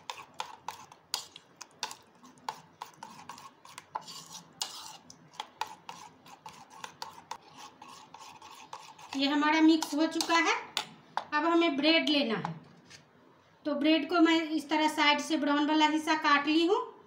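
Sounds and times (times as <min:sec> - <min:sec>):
wet stirring: 0:00.0 - 0:11.4.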